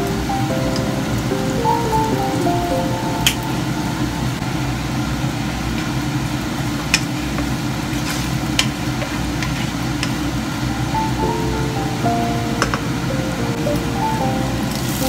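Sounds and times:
meat sizzling in a frying pan: 14.7s - 15.0s.

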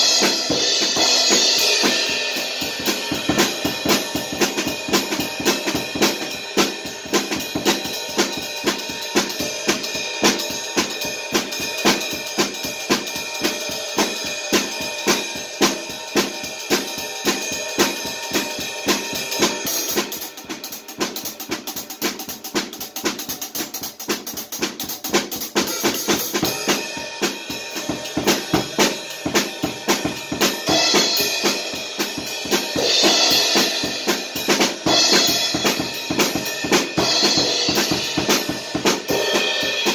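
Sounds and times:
bass drum: 0.0s - 39.9s
snare drum: 0.0s - 39.9s.

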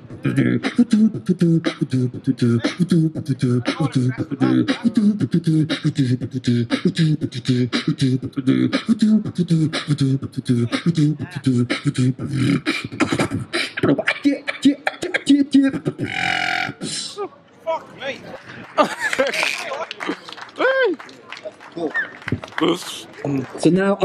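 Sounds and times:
low sung bassline: 0.0s - 13.0s
beatboxing vocal drum hits: 0.0s - 17.1s.

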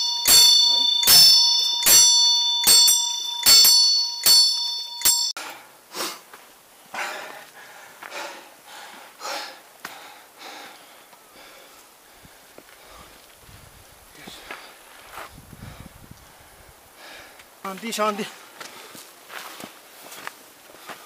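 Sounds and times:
small bell ringing: 0.0s - 5.4s.

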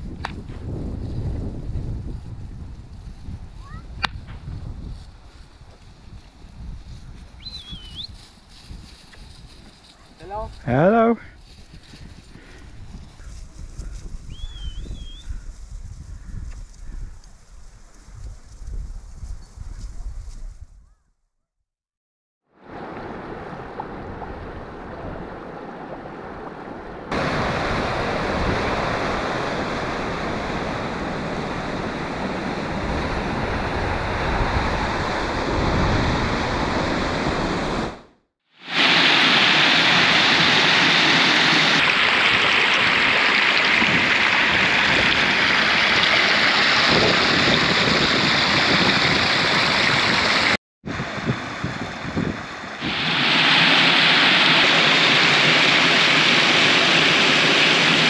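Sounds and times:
stream rushing over its bed: 27.1s - 37.9s, 38.6s - 58.0s
gas bubbling through mud: 41.7s - 50.2s.

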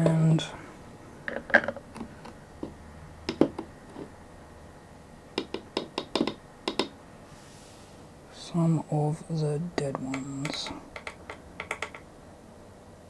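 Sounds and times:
plastic stirrer clicking and tapping: 5.4s - 6.9s, 10.1s - 12.1s.

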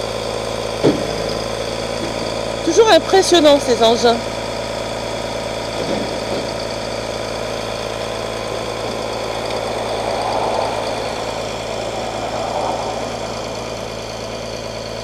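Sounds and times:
truck engine idling: 0.0s - 15.0s
rushing swell: 7.6s - 14.9s.

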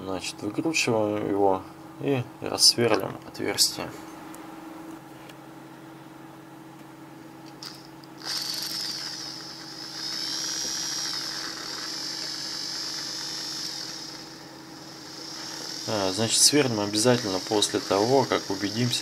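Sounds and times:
steady low hum: 0.0s - 19.0s
electric drill whining: 7.6s - 19.0s.

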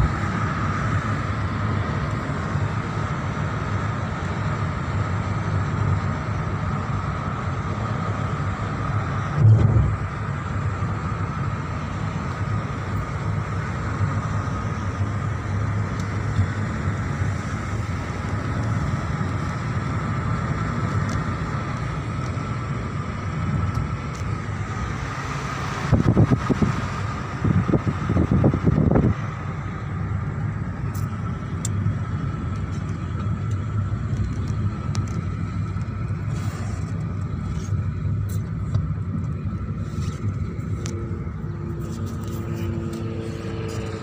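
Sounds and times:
car interior drone: 0.0s - 44.0s
low rumbling bursts: 9.2s - 10.8s.

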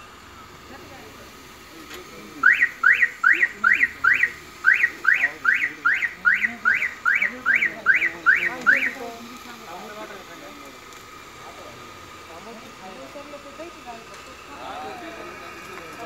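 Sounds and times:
vehicle alarm rising chirps: 2.1s - 10.5s.

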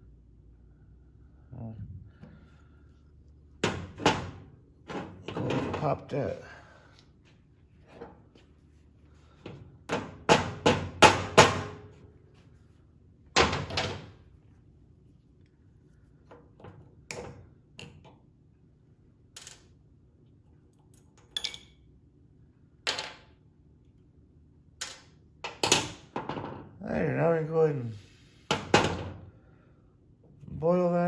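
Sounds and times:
clicks and knocks of parts handled: 19.3s - 19.8s.

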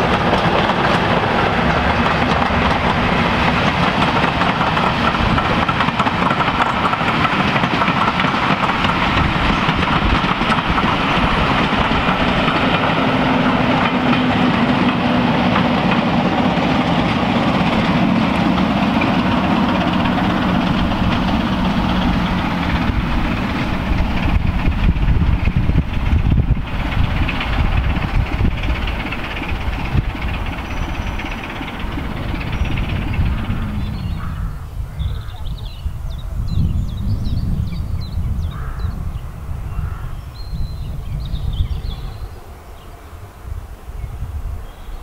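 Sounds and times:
train wheels clattering over rail joints: 0.0s - 34.5s
diesel locomotive engine: 0.0s - 45.0s
low rumble of diesel locomotive: 0.0s - 45.0s.

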